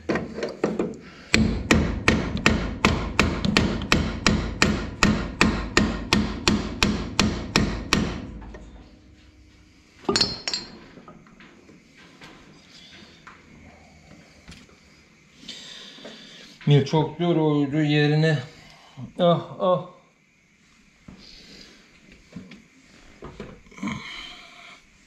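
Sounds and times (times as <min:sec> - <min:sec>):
hammer striking metal: 0:01.3 - 0:10.9
metal clatter: 0:10.0 - 0:11.2.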